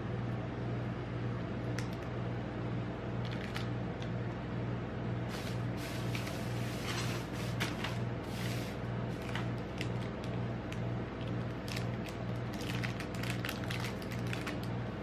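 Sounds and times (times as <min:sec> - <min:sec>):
low refrigeration hum: 0:00.0 - 0:15.0
plastic wrappers crinkling: 0:03.2 - 0:03.7, 0:09.1 - 0:14.8.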